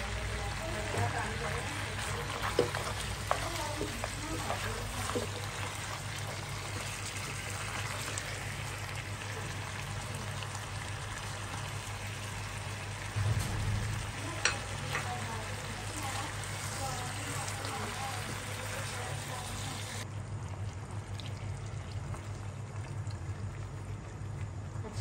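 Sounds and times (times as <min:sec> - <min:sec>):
chicken sizzling in a pan: 0:00.0 - 0:13.2, 0:13.9 - 0:20.1
low hum: 0:13.1 - 0:16.9
low thump: 0:13.2 - 0:14.2.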